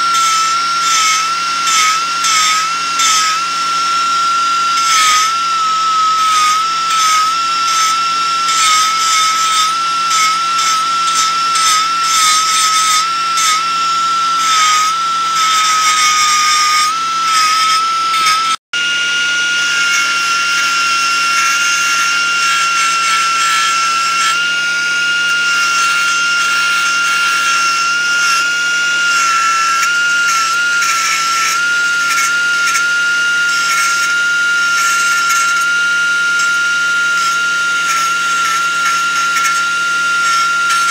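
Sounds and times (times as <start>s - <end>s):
belt sander grinding metal: 0.0s - 40.9s.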